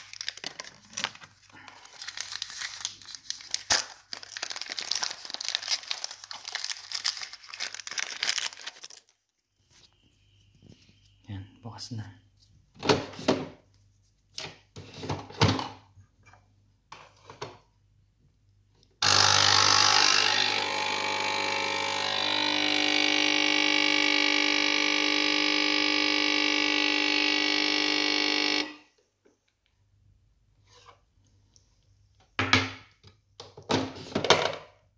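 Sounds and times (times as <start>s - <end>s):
espresso machine pump buzzing: 19.0s - 28.8s.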